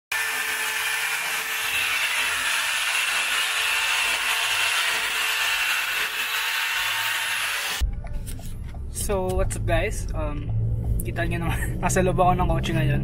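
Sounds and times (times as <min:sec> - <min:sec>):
cordless drill boring into wall: 0:00.1 - 0:07.8.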